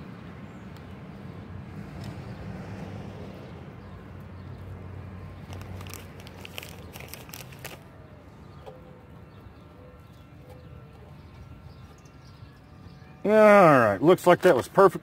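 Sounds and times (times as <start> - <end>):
frozen corn pieces clicking: 5.5 - 7.8.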